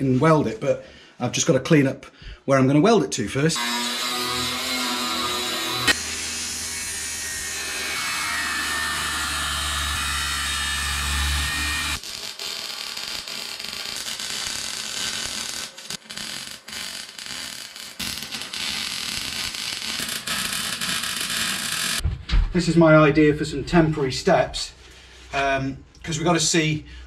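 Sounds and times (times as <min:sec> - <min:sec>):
angle grinder on steel: 0:03.6 - 0:22.0
mig welder welding: 0:03.6 - 0:22.0.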